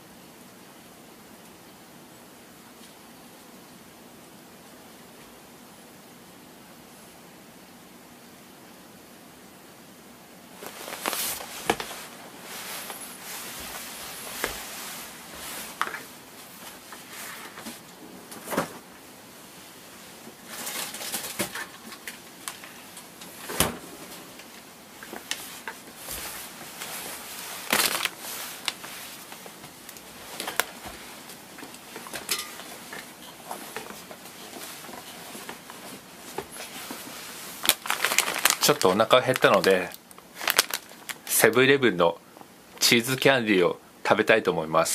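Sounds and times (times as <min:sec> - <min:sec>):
rustling: 0:10.6 - 0:18.8, 0:20.4 - 0:41.2.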